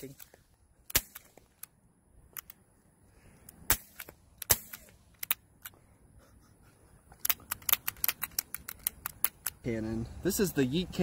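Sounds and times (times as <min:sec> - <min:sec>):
suppressed revolver shots: 0:00.8 - 0:01.7, 0:03.5 - 0:05.7.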